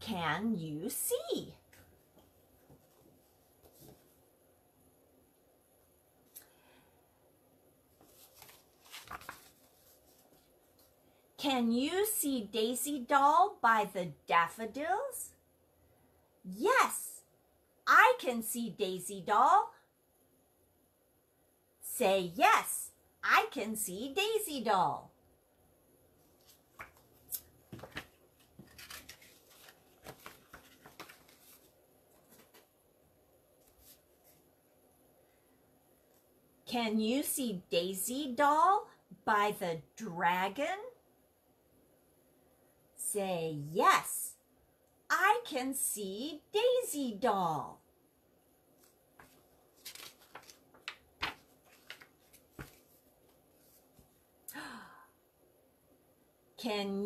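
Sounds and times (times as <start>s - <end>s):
faint paper rustling: 1.7s - 4.3s, 7.9s - 11.1s, 26.2s - 32.8s, 33.5s - 34.6s, 48.7s - 54.3s.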